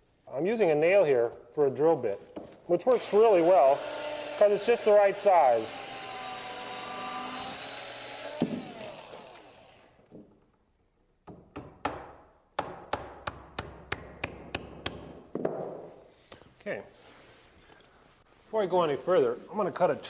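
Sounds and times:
electric drill boring into wood: 2.9 - 10.0.

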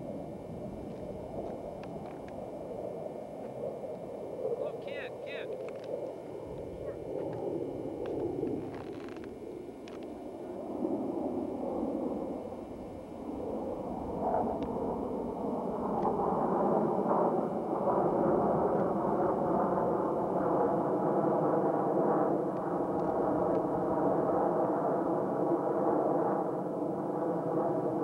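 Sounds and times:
faint steady hum: 0.0 - 28.0
jet aircraft rumble: 0.0 - 28.0.

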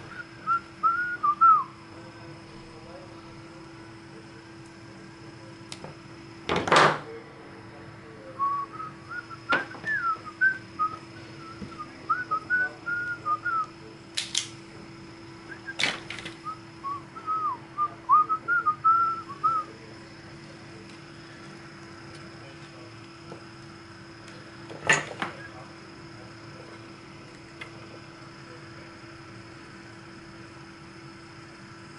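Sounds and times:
steady hum: 0.0 - 31.9
person whistling a tune: 0.1 - 1.7, 8.4 - 13.7, 16.4 - 19.7.

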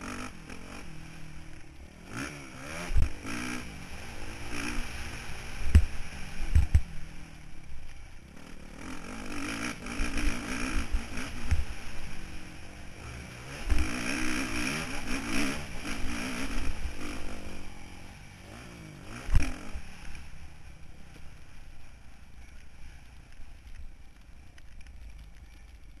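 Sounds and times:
motorbike engine revving: 0.0 - 6.9, 8.3 - 20.5.

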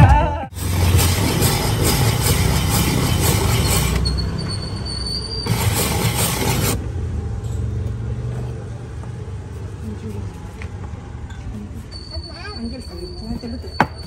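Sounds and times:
moving vehicle rumbling: 0.0 - 14.0
thin high squeal: 0.8 - 6.7, 11.6 - 14.0.

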